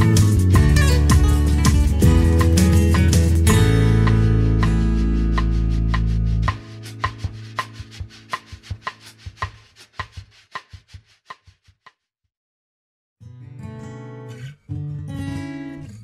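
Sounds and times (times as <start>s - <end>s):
acoustic guitar music: 0.0s - 9.2s, 13.2s - 16.0s.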